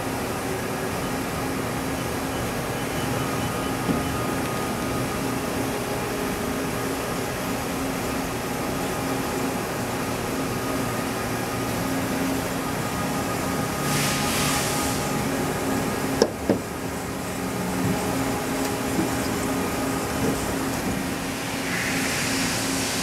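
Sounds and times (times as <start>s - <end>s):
machine hum: 0.0s - 23.0s.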